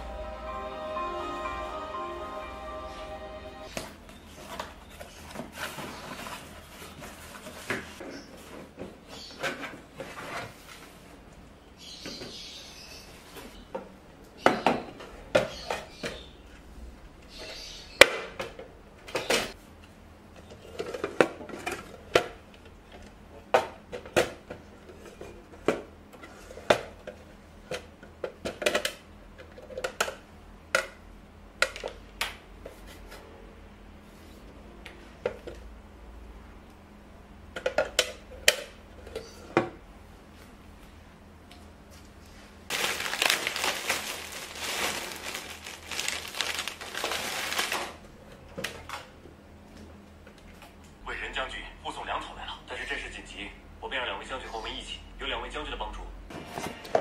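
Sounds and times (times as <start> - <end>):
cardboard rustling: 42.7 - 48.0.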